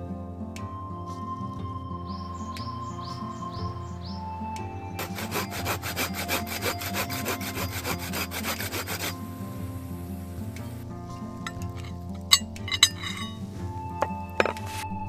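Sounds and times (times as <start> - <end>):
soft background music: 0.0 - 15.0
hand saw cutting log: 5.0 - 9.4.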